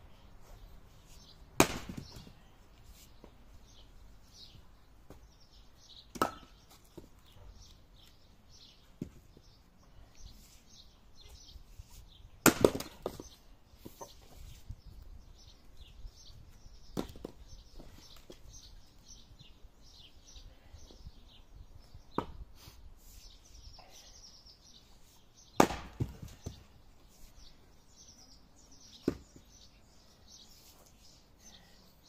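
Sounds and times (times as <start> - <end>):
small birds chirping: 0.0 - 32.0
axe splitting firewood: 1.6 - 2.3, 12.4 - 13.3, 25.6 - 26.6.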